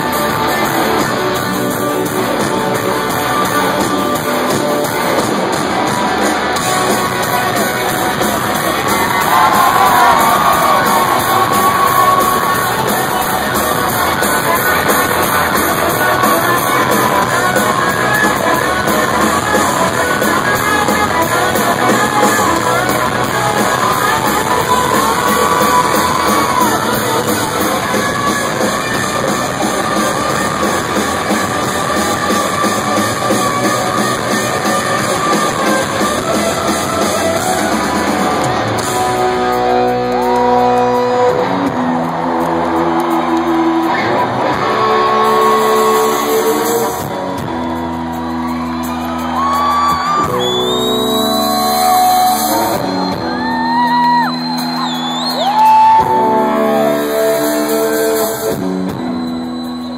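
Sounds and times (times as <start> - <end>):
drums: 0.0 - 59.9
electric guitars: 0.0 - 59.9
sung and yelled vocals: 8.1 - 37.1.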